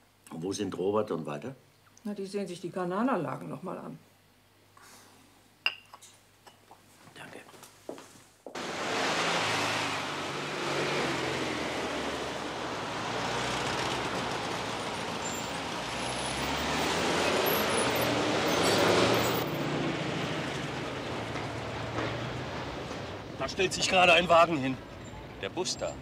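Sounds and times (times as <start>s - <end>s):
bus engine driving slowly: 8.6s - 26.0s.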